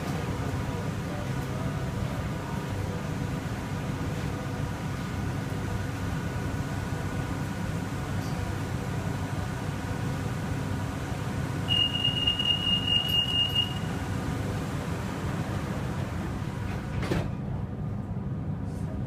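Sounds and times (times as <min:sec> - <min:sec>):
train car rumbling: 0:00.0 - 0:19.0
high steady tone: 0:11.7 - 0:14.1.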